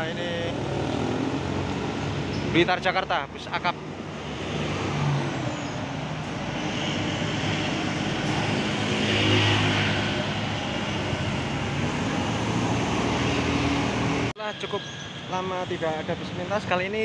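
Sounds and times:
motor scooter passing: 6.6s - 14.3s.

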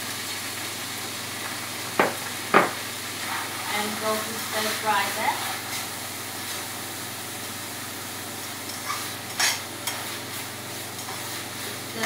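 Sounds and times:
onion sizzling in hot oil: 0.0s - 12.0s
spatula scraping a pan: 3.2s - 4.0s, 8.6s - 12.0s.

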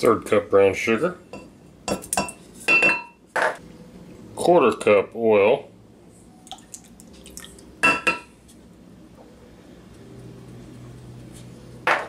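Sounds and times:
glass cup clinking: 7.8s - 8.3s.

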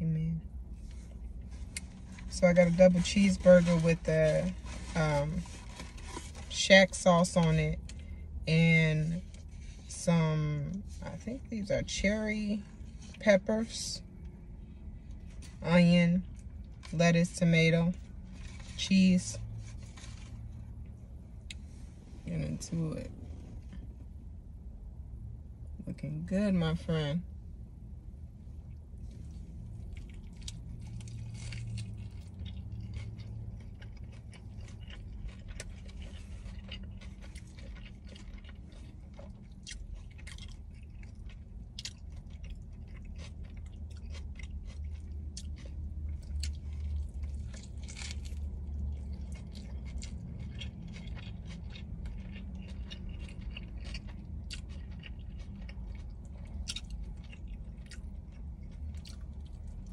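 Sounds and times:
steady low rumble: 0.0s - 59.9s
chewing and biting: 28.7s - 59.9s
crunching: 29.1s - 59.9s.

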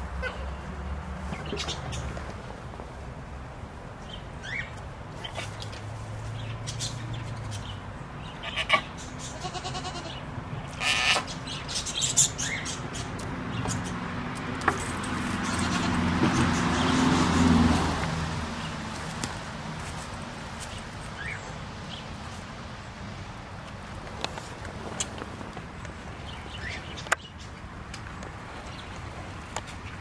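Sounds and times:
small birds chirping: 1.3s - 2.2s, 4.0s - 17.5s, 18.6s - 22.3s, 24.2s - 30.0s
goat bleating: 8.4s - 11.3s, 15.4s - 16.0s.

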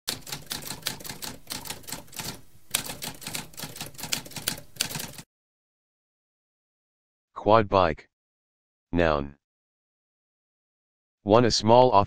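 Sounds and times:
typewriter typing: 0.1s - 5.2s.

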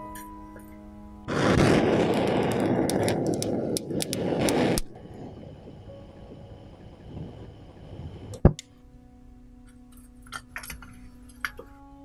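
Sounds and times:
soft music: 0.0s - 12.0s
torch flame hissing: 1.3s - 8.5s.

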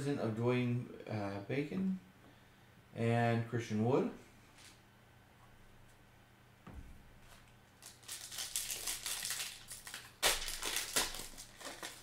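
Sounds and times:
foil wrapper crinkling: 7.3s - 12.0s
wrapper tearing: 7.3s - 12.0s.

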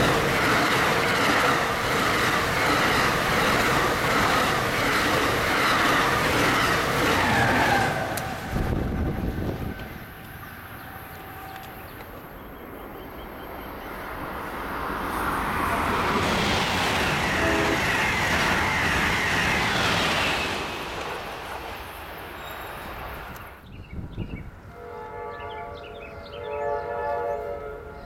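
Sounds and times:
train passing at speed: 0.0s - 28.0s.

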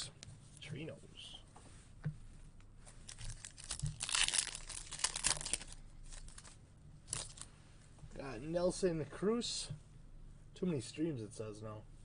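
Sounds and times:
cards being handled: 3.0s - 7.5s
card pack wrapper tearing: 3.1s - 7.5s.

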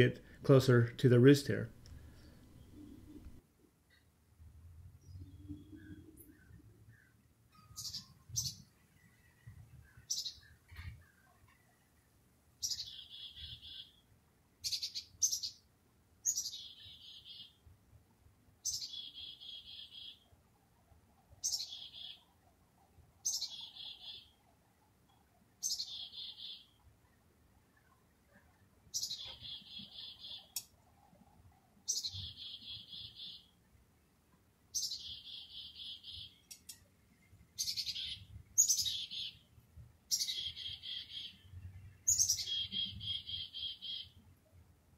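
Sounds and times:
chickadee calls: 12.6s - 14.0s, 16.3s - 17.6s, 18.6s - 20.3s, 21.4s - 22.3s, 23.2s - 24.4s, 25.6s - 26.8s, 28.9s - 30.6s, 31.9s - 33.5s, 34.8s - 36.5s, 37.6s - 39.5s, 40.1s - 44.2s.

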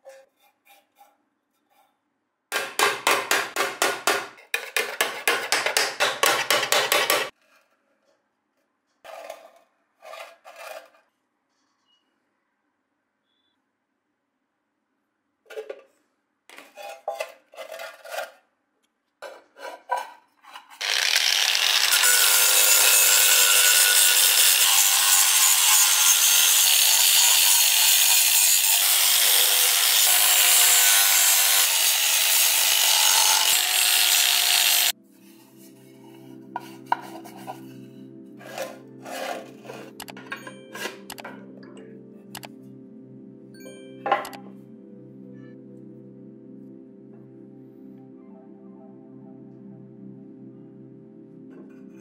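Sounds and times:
angle grinder sanding metal: 20.8s - 35.0s
soft background music: 34.9s - 52.0s.

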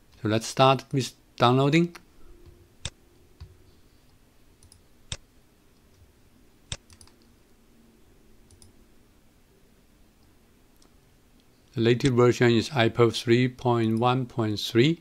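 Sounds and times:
faint steady hum: 0.0s - 15.0s
computer mouse clicking: 4.6s - 5.2s, 6.7s - 7.3s, 8.5s - 8.8s.

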